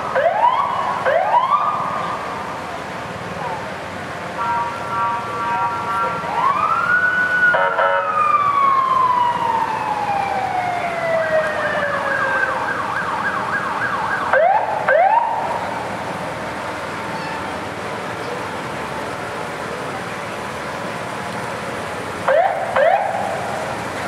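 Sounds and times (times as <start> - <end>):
rising siren whoops: 0.0 - 2.2, 6.2 - 15.9, 22.3 - 23.4
emergency vehicle siren: 0.0 - 24.0.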